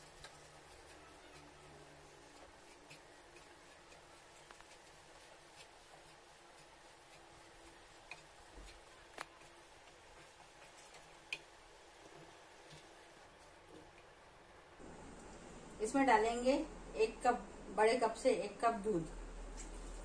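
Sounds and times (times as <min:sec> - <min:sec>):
wooden spatula scraping pan: 0:00.0 - 0:14.0.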